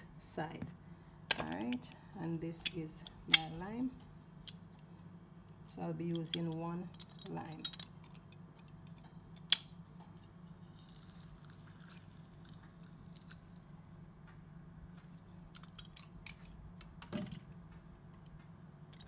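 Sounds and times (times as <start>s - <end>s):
juice dripping: 10.8s - 14.3s.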